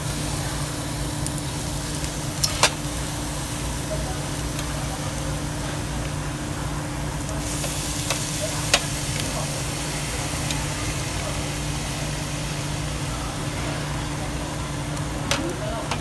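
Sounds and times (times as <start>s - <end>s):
meat sizzling on a grill: 0.0s - 16.0s
metal tongs clicking on grill: 2.0s - 2.8s, 7.4s - 9.3s, 15.2s - 16.0s.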